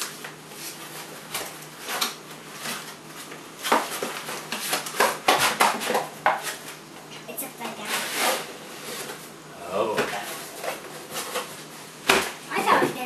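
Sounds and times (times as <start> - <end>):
cardboard flaps rustling and scraping: 0.2 - 6.8, 7.6 - 9.2.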